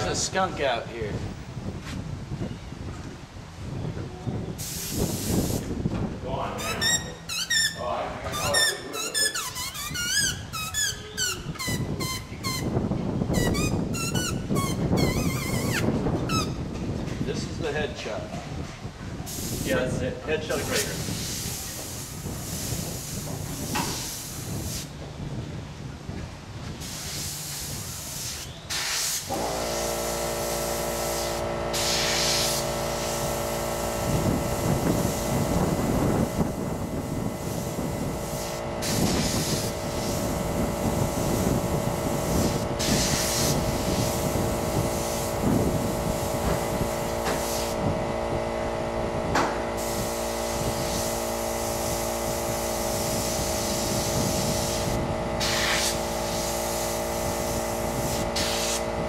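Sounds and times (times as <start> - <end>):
air compressor humming: 4.3 - 25.6, 26.5 - 59.0
airbrush hissing bursts: 4.6 - 5.7, 19.3 - 19.8, 20.5 - 24.9, 26.8 - 47.8, 49.8 - 58.9.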